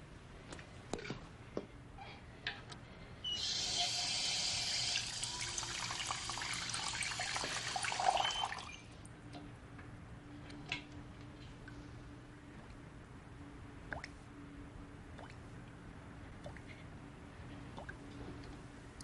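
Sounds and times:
tap water running into sink: 0:03.4 - 0:08.6.

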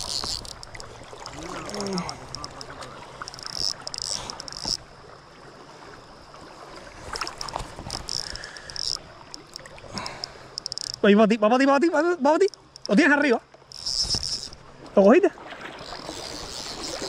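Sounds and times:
fishing reel ratcheting: 0:00.0 - 0:04.8, 0:07.4 - 0:09.6, 0:10.2 - 0:11.0, 0:12.4 - 0:13.1, 0:13.7 - 0:14.6, 0:15.8 - 0:17.0
water washing against boat: 0:00.0 - 0:10.5.

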